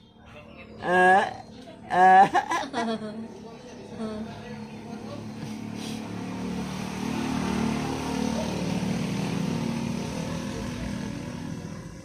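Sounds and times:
vehicle engine passing by: 0:03.3 - 0:12.0.

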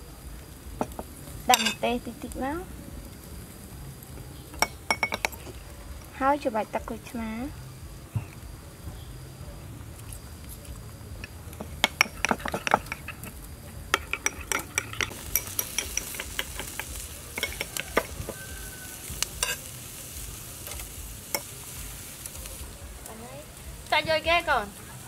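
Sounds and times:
beef sizzling on grill: 0:00.0 - 0:25.0
metal tongs clicking and scraping: 0:10.0 - 0:18.4, 0:19.4 - 0:19.7.

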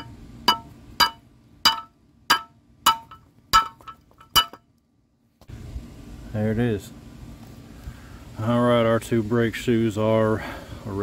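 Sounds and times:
sledgehammer clanging on steel: 0:00.0 - 0:04.6.

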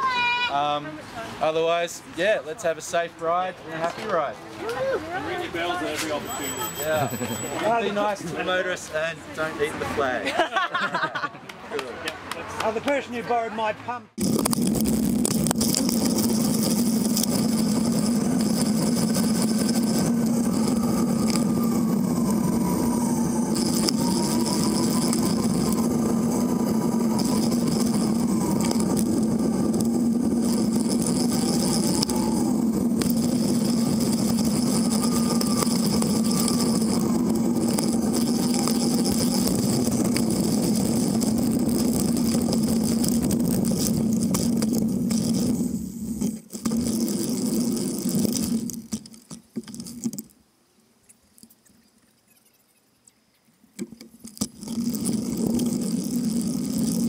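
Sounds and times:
bicycle rolling on pavement: 0:02.8 - 0:09.0, 0:14.2 - 0:50.3, 0:54.1 - 0:57.0.

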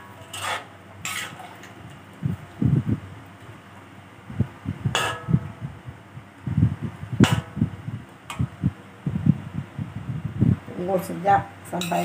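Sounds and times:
metal spatula stirring in wok: 0:00.0 - 0:01.8, 0:11.7 - 0:12.0
spatula clinking on pan: 0:11.8 - 0:12.0.

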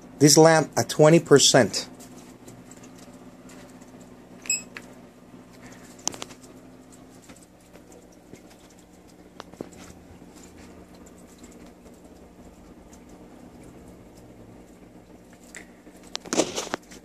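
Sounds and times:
small clicks and scratches: 0:05.6 - 0:12.1, 0:15.3 - 0:17.0.

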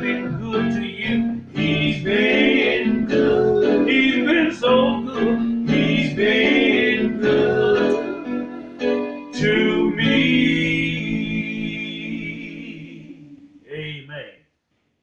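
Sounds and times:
men singing in harmony: 0:00.0 - 0:08.4, 0:09.4 - 0:13.3.

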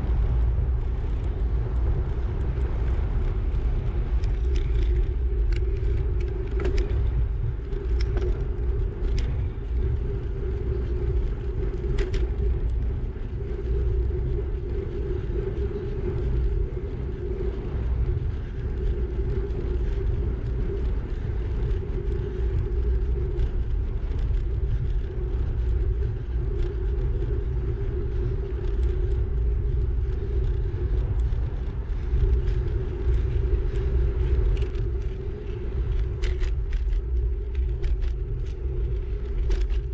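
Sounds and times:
constant low hum: 0:00.0 - 0:39.9
wind buffeting microphone: 0:00.0 - 0:39.9
faint ticks: 0:00.1 - 0:39.9.

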